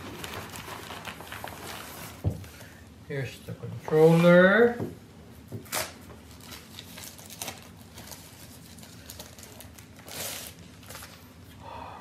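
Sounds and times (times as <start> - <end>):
plastic sleeve crinkling: 0.0 - 2.8, 5.7 - 11.3.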